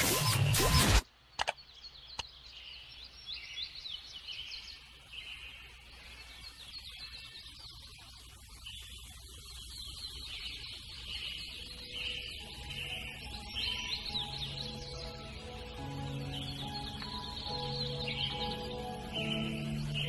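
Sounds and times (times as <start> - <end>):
sharp clicks: 0.0 - 2.3
songbirds chirping and singing: 1.4 - 20.0.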